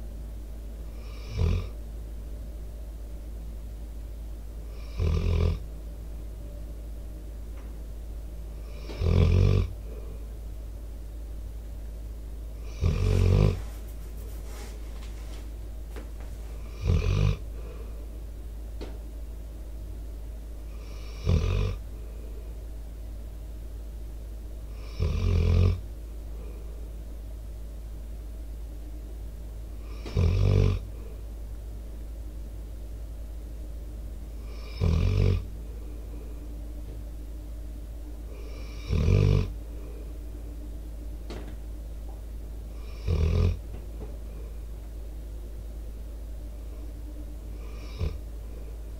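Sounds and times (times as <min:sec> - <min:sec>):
steady low hum: 0:00.0 - 0:48.9
dog snoring: 0:00.9 - 0:01.8, 0:04.7 - 0:05.7, 0:08.6 - 0:10.0, 0:12.6 - 0:13.8, 0:16.5 - 0:17.8, 0:20.7 - 0:21.8, 0:24.7 - 0:25.8, 0:29.8 - 0:30.8, 0:34.4 - 0:35.5, 0:38.3 - 0:40.0, 0:42.7 - 0:43.6, 0:47.5 - 0:48.2.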